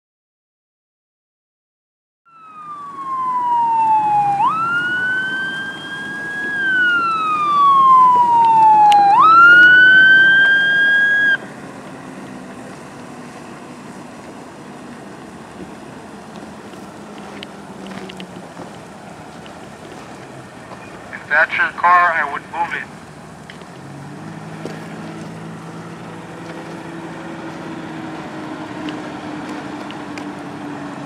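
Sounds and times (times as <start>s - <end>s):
emergency siren wailing: 2.3s - 23.1s
quiet background rush: 2.3s - 31.0s.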